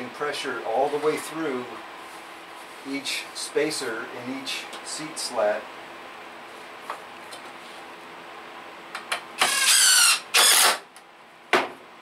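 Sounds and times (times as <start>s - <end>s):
cordless driver driving screw: 9.4s - 10.8s.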